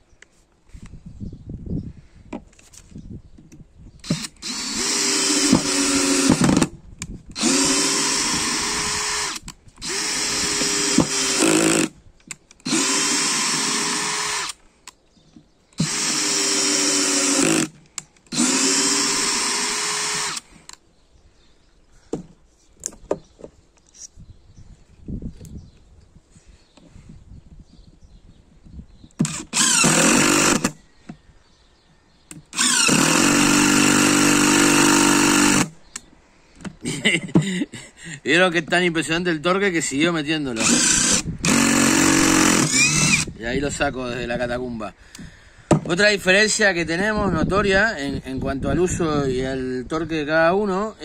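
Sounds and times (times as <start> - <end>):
power driver driving screws into wood: 4.0 - 14.6, 15.8 - 20.8, 29.1 - 30.8, 32.3 - 36.8, 40.6 - 43.4.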